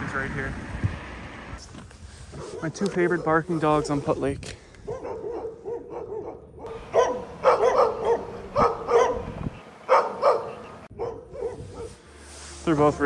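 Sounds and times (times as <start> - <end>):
dogs barking: 2.4 - 4.0, 4.8 - 12.0.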